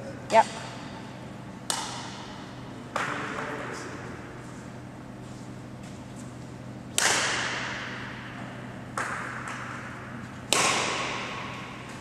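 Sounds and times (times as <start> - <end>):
racket hitting shuttlecock: 1.7 - 2.4, 6.9 - 12.0.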